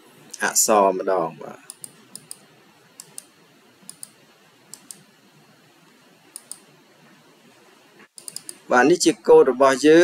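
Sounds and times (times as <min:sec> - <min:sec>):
room hiss: 0:00.0 - 0:10.0
computer mouse double clicks: 0:03.0 - 0:03.3, 0:03.9 - 0:05.0, 0:06.4 - 0:06.7, 0:08.2 - 0:08.6.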